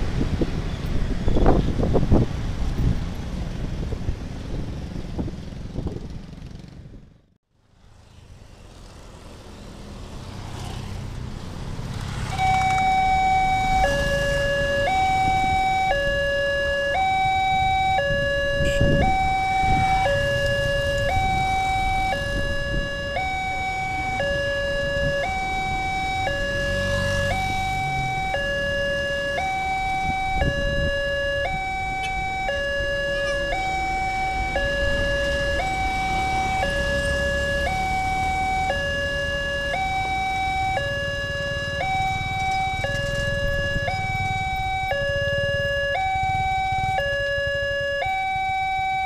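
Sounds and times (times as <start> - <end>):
motorcycles and cars passing: 0.0 - 49.0
two-tone crossing warning chime: 12.3 - 49.0.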